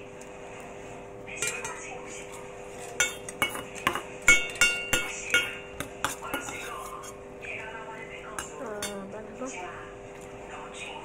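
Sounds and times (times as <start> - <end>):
fork clinking against metal bowl: 1.4 - 7.2, 8.4 - 9.1.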